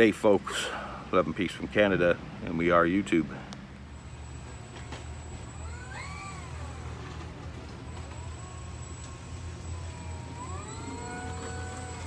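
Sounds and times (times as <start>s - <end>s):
animal calling with gliding cries: 5.3s - 12.0s.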